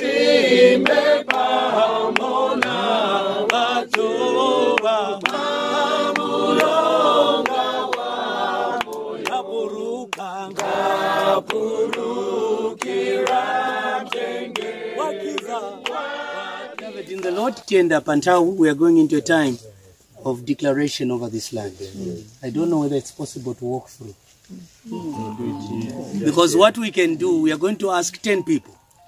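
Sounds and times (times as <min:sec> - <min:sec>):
group singing a hymn: 0:00.0 - 0:18.3, 0:24.9 - 0:27.3
hand claps: 0:00.8 - 0:08.1, 0:08.7 - 0:09.4, 0:10.1 - 0:16.0, 0:16.7 - 0:17.4.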